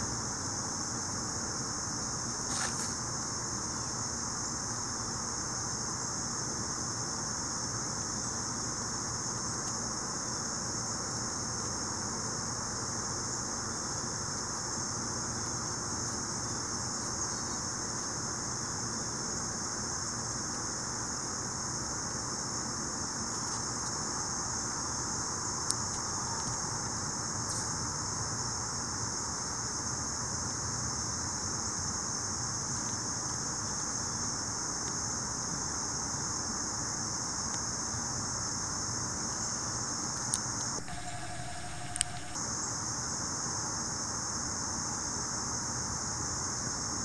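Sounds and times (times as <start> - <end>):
high-pitched insect chorus: 0.0 - 47.0
sharp click: 40.8 - 42.4.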